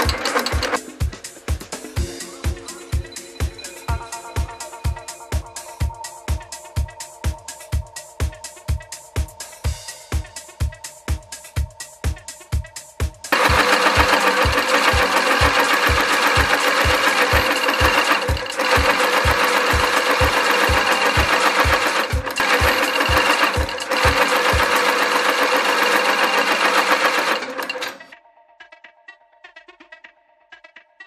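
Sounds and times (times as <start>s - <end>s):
stitching machine clattering: 0.0s - 0.8s, 13.3s - 28.1s.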